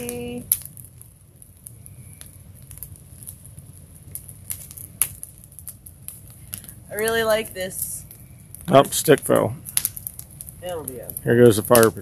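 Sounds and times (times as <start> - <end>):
bonfire crackling and popping: 0.0 - 12.0
low steady rumble: 0.0 - 12.0.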